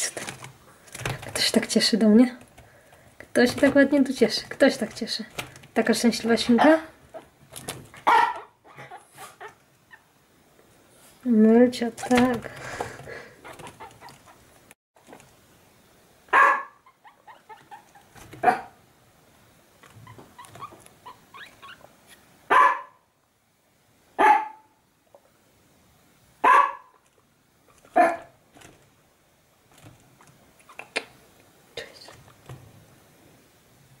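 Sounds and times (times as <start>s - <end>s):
dog barking: 8.0s - 9.6s, 16.3s - 16.8s, 18.4s - 18.8s, 22.5s - 23.0s, 24.2s - 24.7s, 26.4s - 27.0s, 28.0s - 28.4s.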